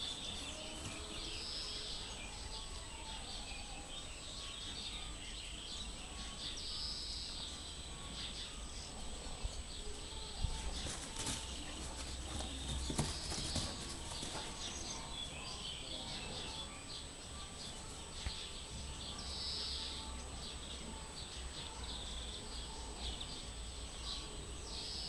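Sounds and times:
puppies scuffling on grass: 0.0 - 2.3, 10.2 - 16.4.

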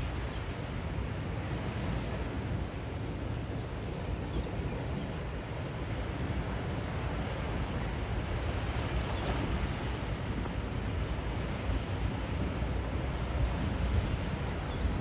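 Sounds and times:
low waterside rumble: 0.0 - 15.0
wind buffeting microphone: 0.0 - 15.0.

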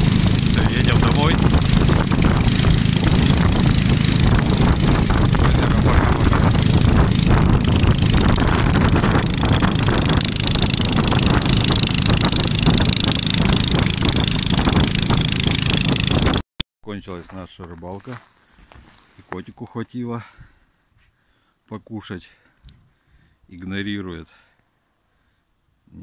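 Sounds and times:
small engine running: 0.0 - 16.4
rush of travel noise: 0.0 - 16.5.

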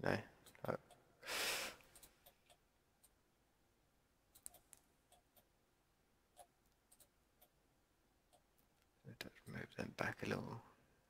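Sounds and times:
mouse and keyboard clicks: 4.3 - 5.5.

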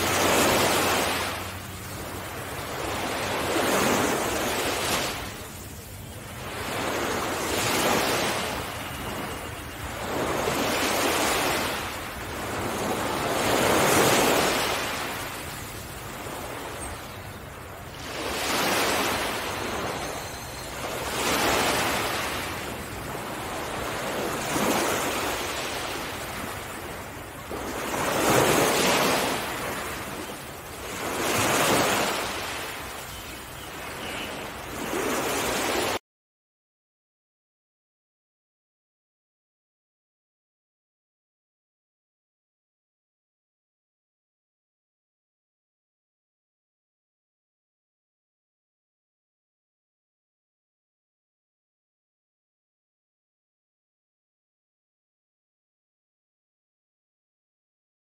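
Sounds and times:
sea waves washing ashore: 0.0 - 36.0.

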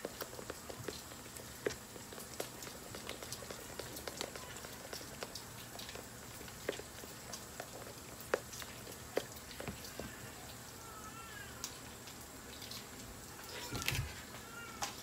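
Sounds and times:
bacon sizzling: 0.0 - 11.4
bacon fat crackling and popping: 0.0 - 15.0.

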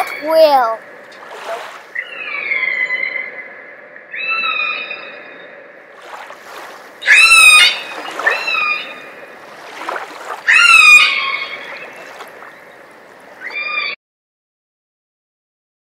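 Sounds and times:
whale high-pitched calls: 1.6 - 3.5, 4.1 - 5.4, 7.0 - 9.2, 9.8 - 12.8, 13.4 - 14.0.

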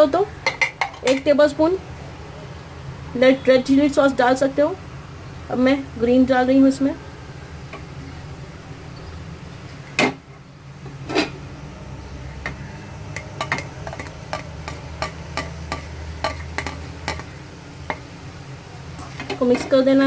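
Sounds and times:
low steady hum: 0.0 - 20.0
spatula knocking on pan: 13.2 - 18.0.

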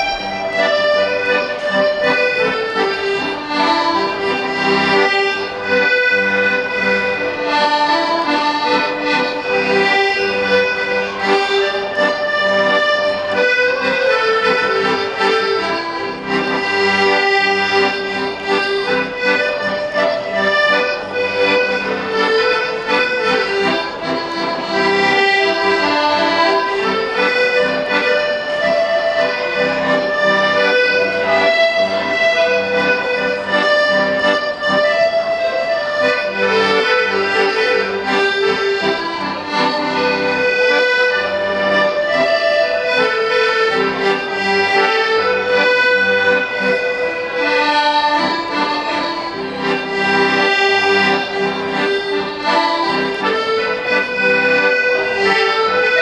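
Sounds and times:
piano accordion melody: 0.0 - 56.0.

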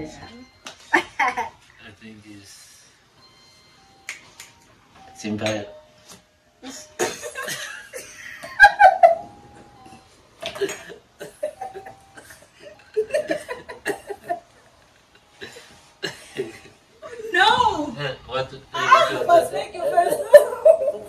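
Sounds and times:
people laughing: 19.8 - 21.0.

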